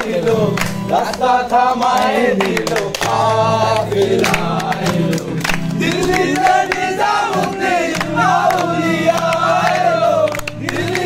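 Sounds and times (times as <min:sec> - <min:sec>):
group of men singing: 0:00.0 - 0:11.0
strummed acoustic guitar: 0:00.0 - 0:11.0.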